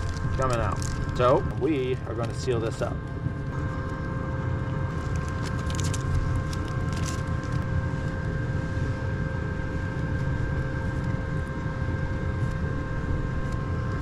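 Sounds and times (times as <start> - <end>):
plastic wrapper crinkling: 0.0 - 2.4, 4.9 - 7.8
low mechanical hum with whine: 0.0 - 14.0.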